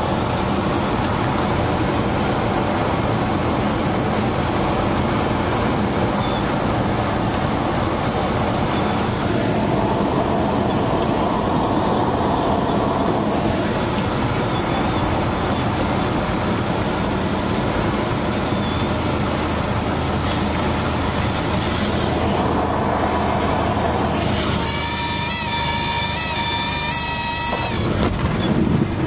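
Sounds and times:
light aircraft engine and propeller drone: 0.0 - 29.0
rush of air: 7.4 - 14.5, 21.3 - 24.5.

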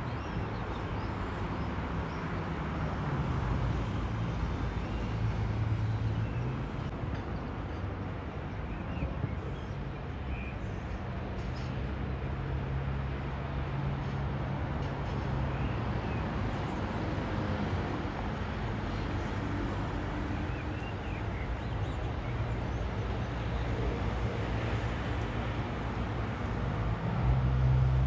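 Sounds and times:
outdoor background rush: 0.0 - 28.0.

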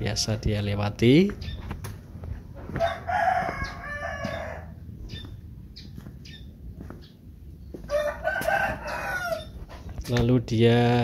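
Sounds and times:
rooster crowing: 2.6 - 4.8, 7.8 - 9.6.

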